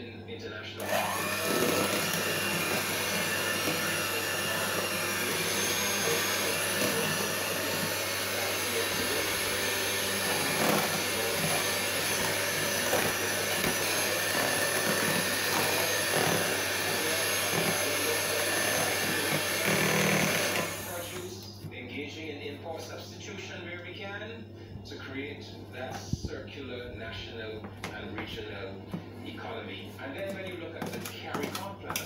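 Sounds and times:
electric hand mixer whirring: 0.8s - 21.3s.

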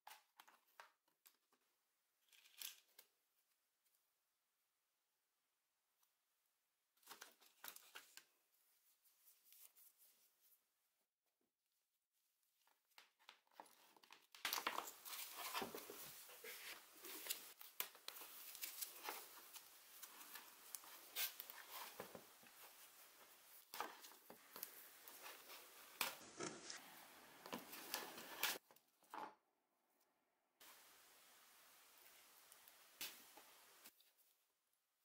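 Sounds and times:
cable rubbing and rustling: 13.5s - 29.2s.

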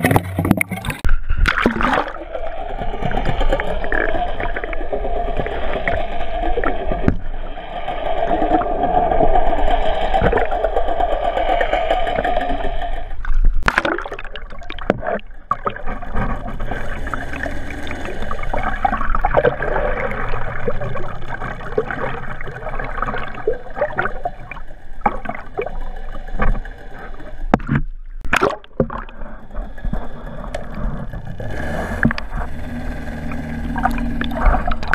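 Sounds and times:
muffled underwater rushing water: 0.0s - 34.9s
steady hum: 0.0s - 34.9s
loud splash: 13.6s - 14.4s.

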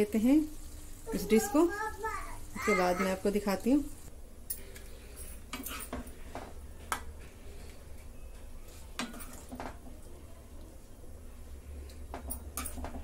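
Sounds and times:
utensils scraping and clinking a pan: 5.3s - 6.2s.

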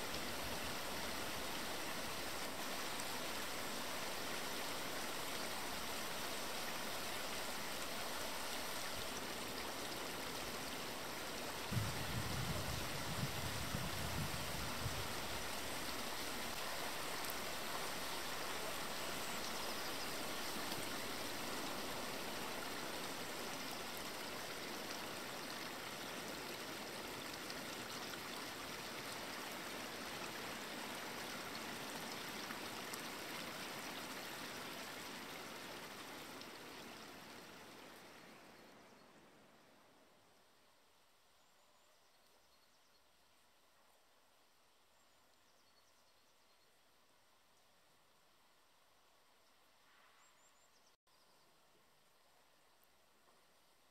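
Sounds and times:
stream water rushing: 0.0s - 38.5s.

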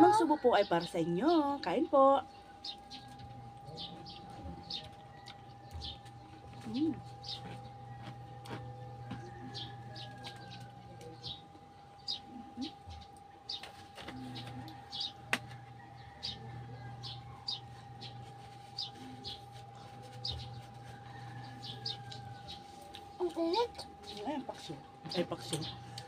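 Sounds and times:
faint hum: 0.0s - 26.0s
small birds chirping: 0.0s - 26.0s.

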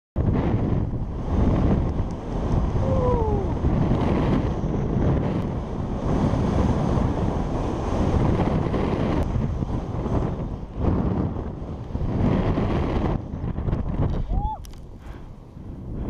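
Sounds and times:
wind rushing over microphone: 0.2s - 16.0s.

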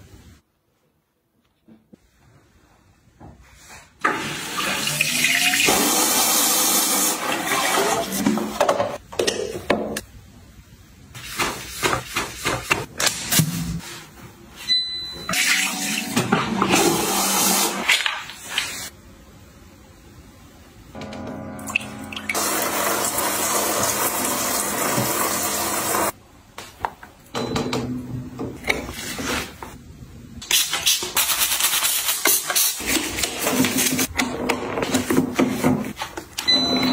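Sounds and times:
toilet flushing: 4.0s - 9.0s, 15.3s - 18.2s, 21.0s - 26.2s.

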